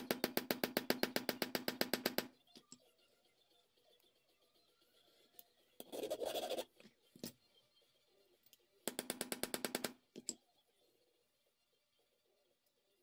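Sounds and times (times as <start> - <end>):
small hammer tapping metal: 8.9 - 10.4.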